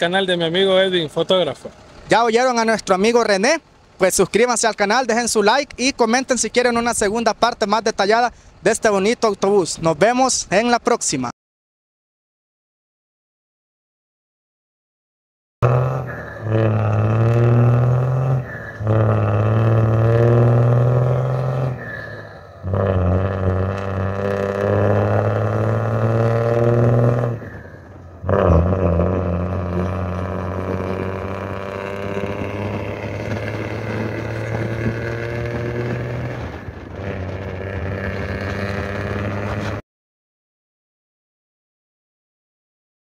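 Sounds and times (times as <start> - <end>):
bus engine accelerating: 0.0 - 5.8, 15.6 - 39.8.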